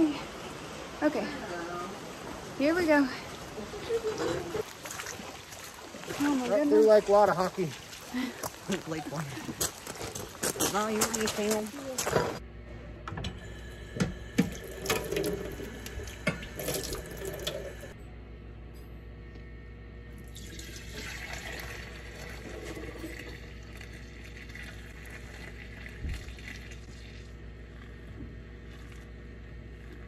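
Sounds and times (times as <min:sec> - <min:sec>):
milk pouring: 0:14.5 - 0:18.0, 0:20.3 - 0:28.0.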